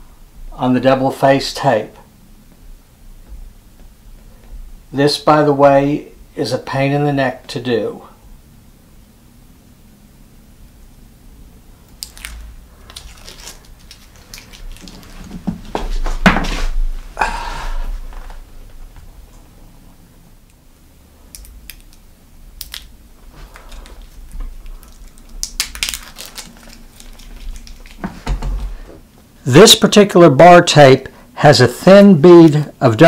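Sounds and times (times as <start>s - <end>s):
paper backing peeled off tape: 12.0s - 15.3s
paper crinkling and rustling: 12.0s - 16.1s, 23.3s - 28.7s.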